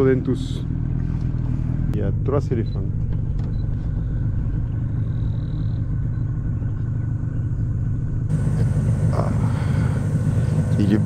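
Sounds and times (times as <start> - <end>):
outboard motor humming: 0.0 - 11.0.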